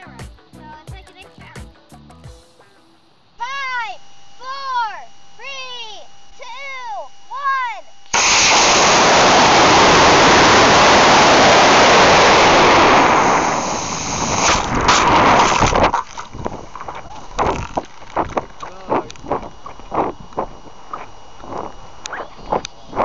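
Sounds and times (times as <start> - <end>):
rocket motor roaring: 5.6 - 23.0.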